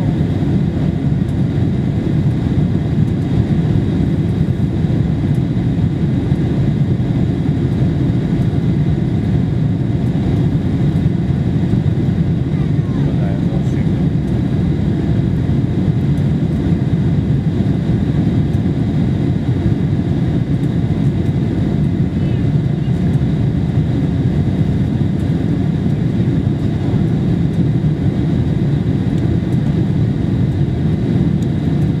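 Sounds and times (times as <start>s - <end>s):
airplane cabin engine roar: 0.0s - 32.0s.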